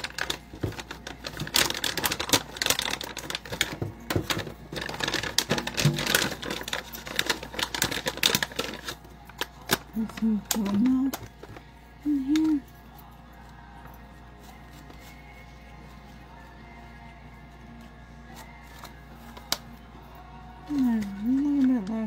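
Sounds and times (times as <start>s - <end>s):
plastic pouch crinkling: 0.0s - 12.6s.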